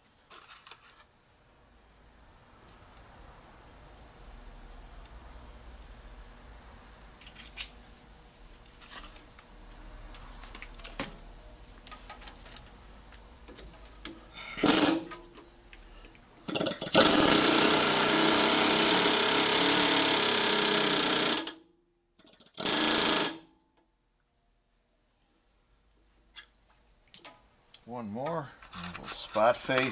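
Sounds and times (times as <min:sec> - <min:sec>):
pneumatic hammer hammering: 0:14.6 - 0:15.2, 0:16.5 - 0:21.6, 0:22.4 - 0:23.4.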